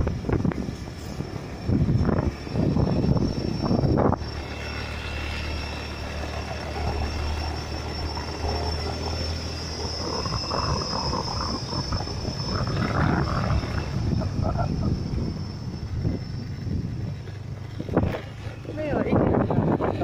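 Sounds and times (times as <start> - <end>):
steady high tone: 0.8 - 17.7
motorbike engine running: 1.7 - 20.0.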